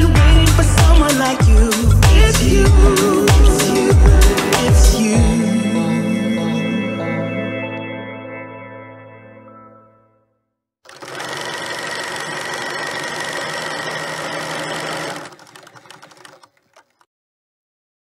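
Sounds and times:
music: 0:00.0 - 0:10.7
film projector clattering: 0:10.9 - 0:17.1.

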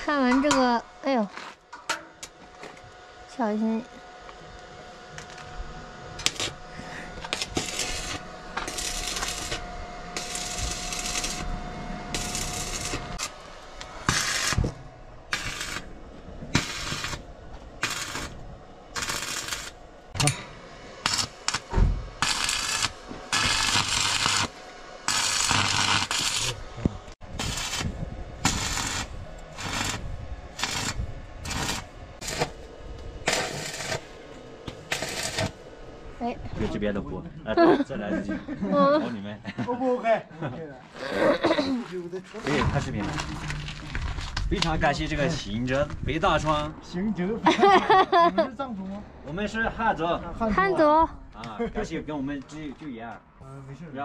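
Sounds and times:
arc welder crackling: 0:00.0 - 0:36.3, 0:41.8 - 0:46.7.

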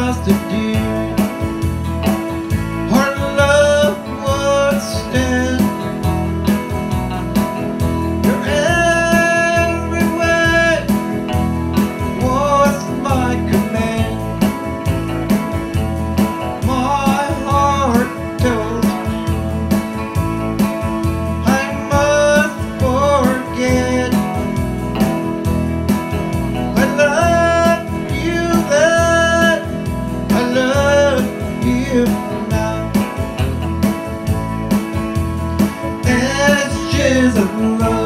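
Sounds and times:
man singing: 0:00.0 - 0:01.7, 0:02.8 - 0:06.3, 0:08.2 - 0:11.2, 0:12.0 - 0:14.5, 0:16.5 - 0:19.4, 0:21.3 - 0:24.8, 0:26.6 - 0:33.5, 0:36.0 - 0:38.0
electric guitar through amplifier: 0:00.0 - 0:38.0
electronic keyboard: 0:00.0 - 0:38.0.

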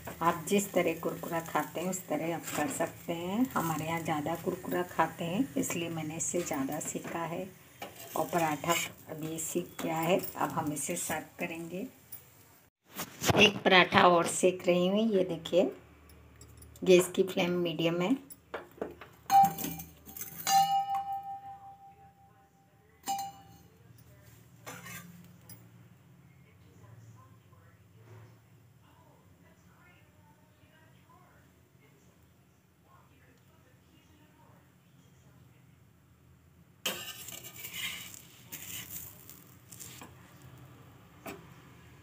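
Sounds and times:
metal spatula scraping griddle: 0:07.8 - 0:11.0, 0:24.6 - 0:25.2, 0:36.9 - 0:40.2
metal spoon clinking steel bowl: 0:07.8 - 0:11.2, 0:16.0 - 0:17.2, 0:19.3 - 0:21.5, 0:23.0 - 0:25.7, 0:36.9 - 0:40.1.

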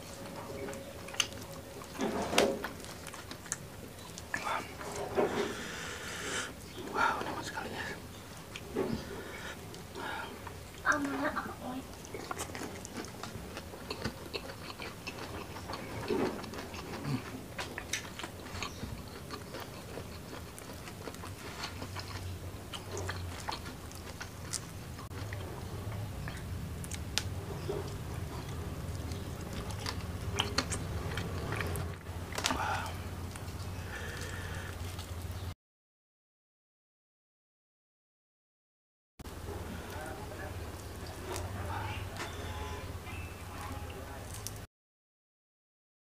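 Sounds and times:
person chewing food: 0:00.0 - 0:07.3, 0:08.3 - 0:11.0, 0:11.9 - 0:35.4.

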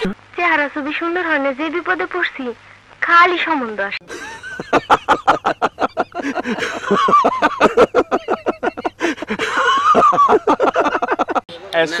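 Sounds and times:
men laughing loudly: 0:04.0 - 0:11.5.

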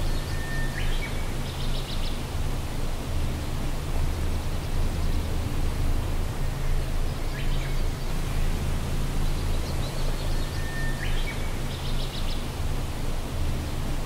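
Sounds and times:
low hum: 0:00.0 - 0:14.0
faint high chirps: 0:09.4 - 0:12.5.

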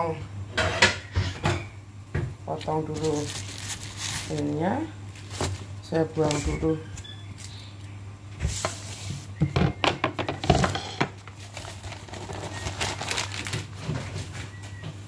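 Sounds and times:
steady low hum: 0:00.0 - 0:15.0
plastic bag crinkling: 0:02.6 - 0:07.6, 0:11.3 - 0:14.2.

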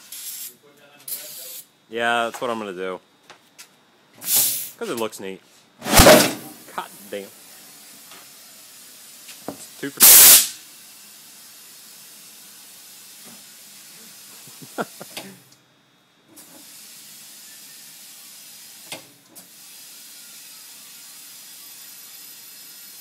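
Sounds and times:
compressed air hissing into tire: 0:00.0 - 0:01.7, 0:04.2 - 0:04.8, 0:05.8 - 0:15.2, 0:16.4 - 0:23.0.

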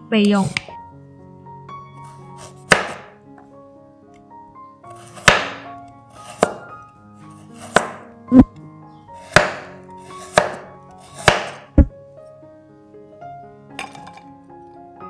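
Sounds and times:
soft background music: 0:00.0 - 0:15.0
knife chopping on wooden board: 0:02.6 - 0:03.1, 0:05.0 - 0:05.6, 0:06.2 - 0:06.7, 0:07.6 - 0:08.5, 0:09.2 - 0:11.9.

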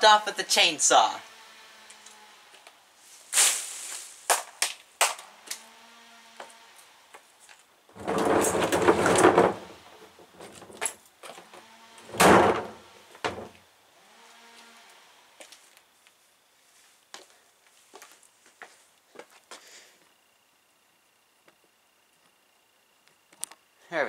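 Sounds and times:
leaves swishing: 0:03.0 - 0:04.4
branch crashing onto pavement: 0:03.3 - 0:05.3.

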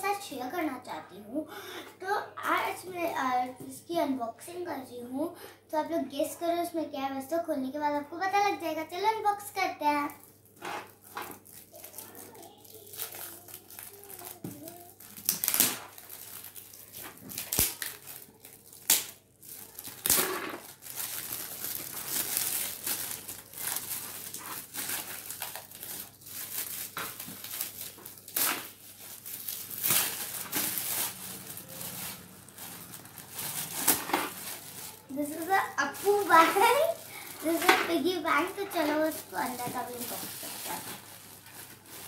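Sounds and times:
plastic gift wrapping crinkling: 0:09.9 - 0:42.0.

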